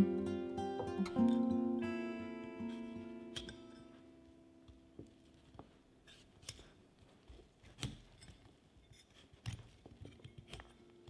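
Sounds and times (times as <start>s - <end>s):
knife cutting broccoli: 6.0s - 6.8s.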